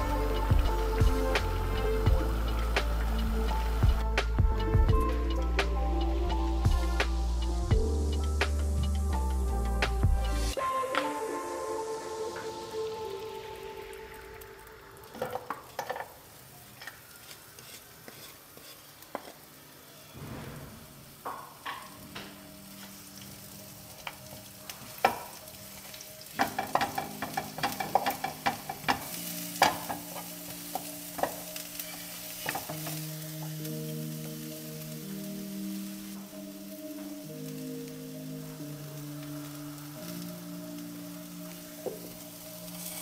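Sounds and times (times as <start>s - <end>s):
onion sizzling in hot oil: 0.0s - 5.4s, 6.2s - 43.0s
wooden spatula scraping pan: 16.8s - 20.8s.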